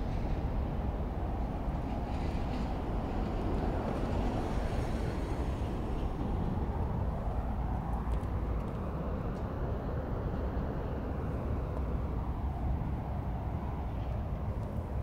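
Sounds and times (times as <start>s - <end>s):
low rumbling outdoor background: 0.0s - 15.0s.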